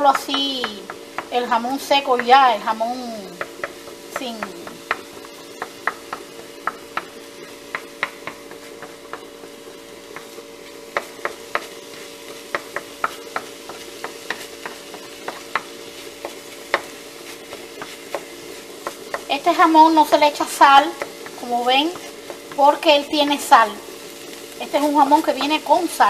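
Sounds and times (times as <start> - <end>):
utensil clicking against pan: 0.0 - 1.4, 3.3 - 19.4, 20.0 - 22.9
meat sizzling lightly: 0.0 - 26.0
steady low hum: 0.0 - 26.0.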